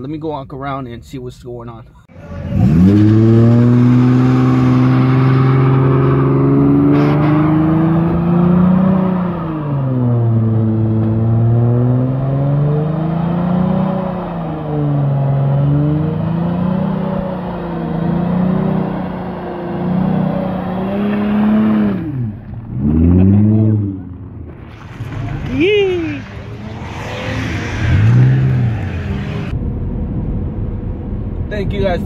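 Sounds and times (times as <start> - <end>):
car engine revving high: 2.1 - 24.4, 25.2 - 29.6
tyres spinning on pavement: 24.5 - 29.5.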